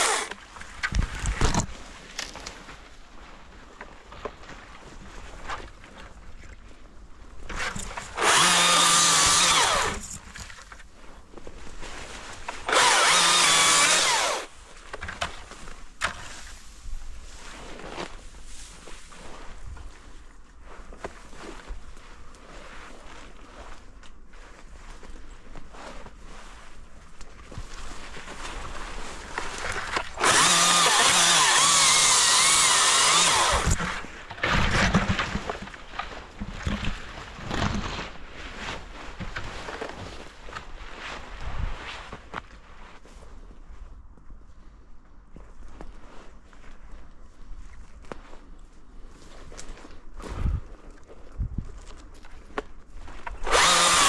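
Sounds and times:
battery chainsaw running: 0.0 - 0.4, 8.0 - 10.2, 12.6 - 14.5, 30.2 - 34.0, 53.4 - 54.0
branches rustling and snapping: 0.0 - 2.9, 7.5 - 16.8, 27.1 - 40.8, 49.4 - 54.0.

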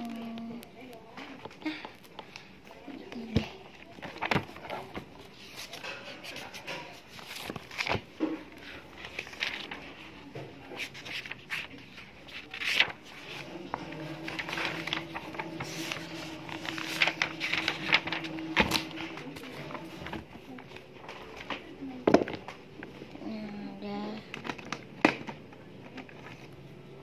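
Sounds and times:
notebook pages flipping: 3.1 - 23.0, 24.3 - 26.6
paper rustling: 3.1 - 23.0, 24.3 - 26.6
low steady hum: 11.2 - 24.8.

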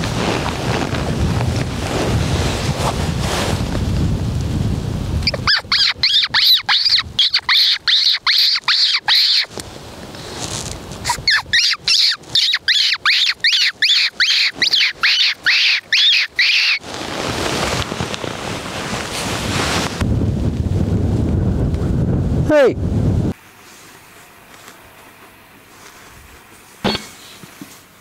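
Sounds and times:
fox caller high-pitched squeaks: 5.2 - 9.5, 11.1 - 16.8.

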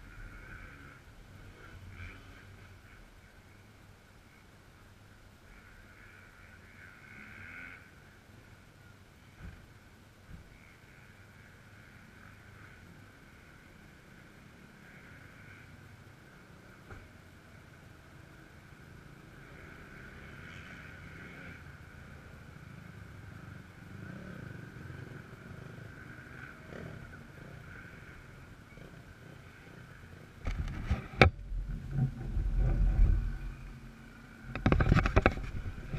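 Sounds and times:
distant motocross bikes: 0.0 - 35.9
camera handling rubbing and knocking: 30.4 - 31.4, 34.5 - 35.9.

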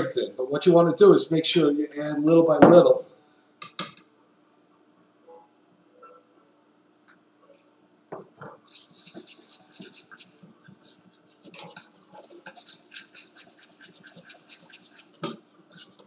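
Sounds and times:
utensil scratching a mixing bowl: 8.7 - 16.0.

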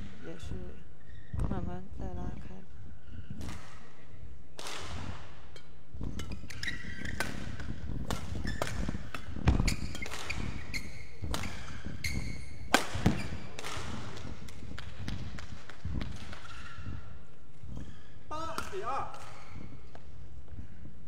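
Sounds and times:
rackets striking shuttlecock: 3.4 - 17.0
footsteps on court: 4.6 - 21.0
shoe squeaks on court mat: 5.6 - 13.6, 16.1 - 18.3.

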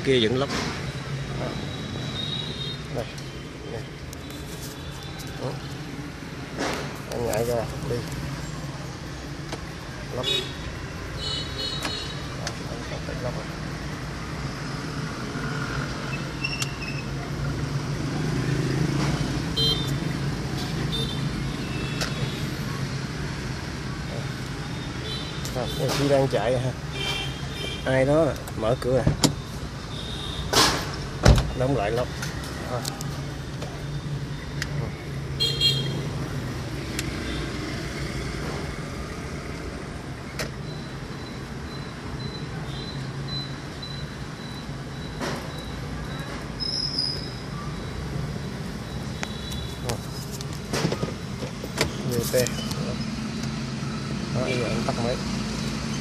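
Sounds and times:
car engine and road noise: 0.0 - 56.0
car engine and road hum: 47.5 - 56.0.

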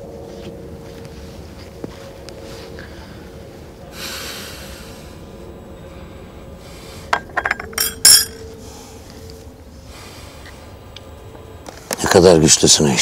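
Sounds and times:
soft rustle: 0.0 - 3.8
china cups clinking: 7.1 - 8.4.

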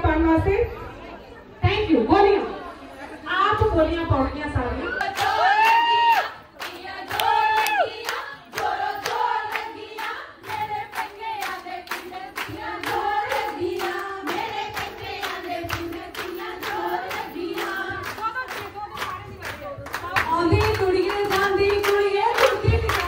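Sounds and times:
women singing: 4.8 - 23.0
rhythmic hand clapping: 5.0 - 23.0.

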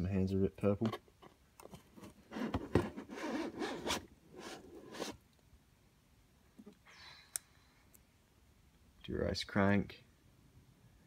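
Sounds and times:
plastic and cardboard rustling: 0.8 - 5.2.

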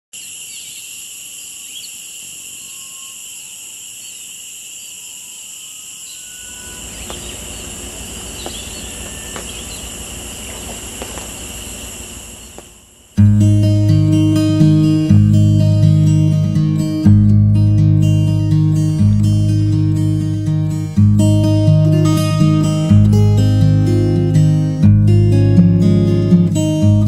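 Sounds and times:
insects trilling: 0.1 - 17.1
faint bird whistles: 2.5 - 4.2, 4.9 - 12.6.

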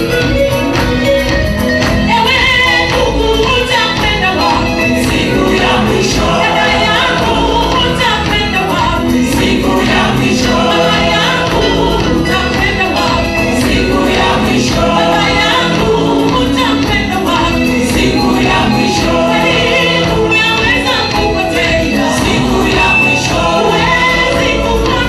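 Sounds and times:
gospel music with steady beat: 0.0 - 25.0
people clapping: 0.0 - 25.0
women's choir singing: 2.8 - 25.0
woman singing into a microphone: 10.7 - 25.0.

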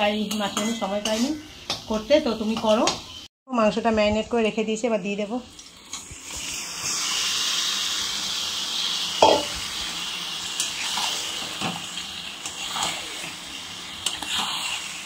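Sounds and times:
chicken sizzling in a pan: 5.6 - 15.0
spatula knocking and scraping pan: 9.2 - 9.6.

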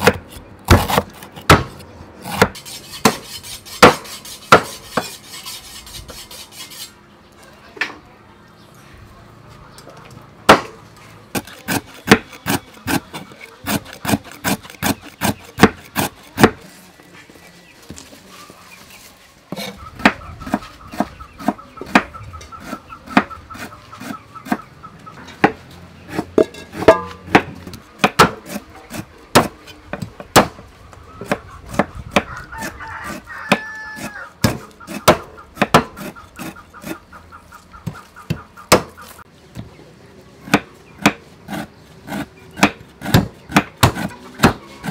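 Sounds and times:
cleaver chopping on wooden block: 0.0 - 5.1, 10.5 - 16.6, 25.4 - 30.6, 33.5 - 37.0, 37.8 - 39.0, 40.4 - 44.9.

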